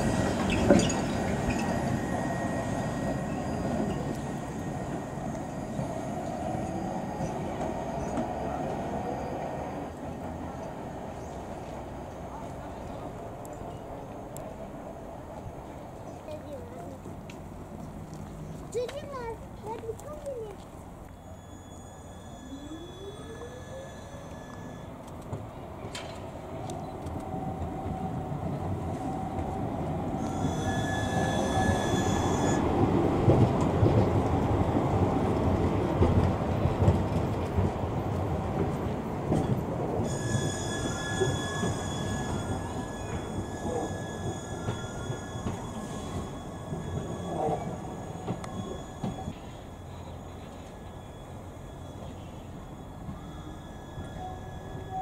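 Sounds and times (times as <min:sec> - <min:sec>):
wheel squeal: 0:00.0 - 0:08.4, 0:21.0 - 0:25.0, 0:30.2 - 0:32.8, 0:39.4 - 0:55.0
tram running on rails: 0:00.0 - 0:55.0.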